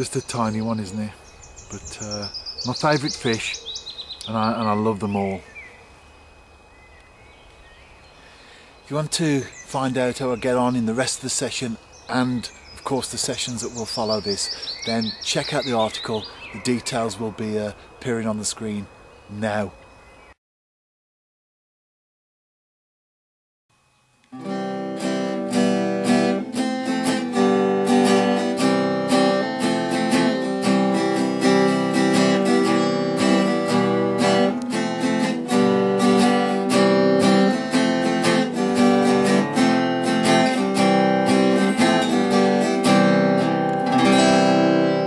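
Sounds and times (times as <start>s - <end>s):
strummed guitar music: 24.3s - 45.0s.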